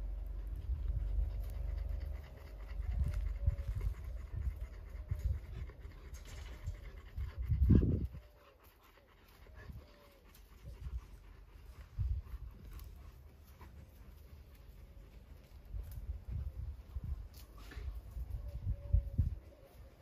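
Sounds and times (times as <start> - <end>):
animal panting: 0.0 - 20.0.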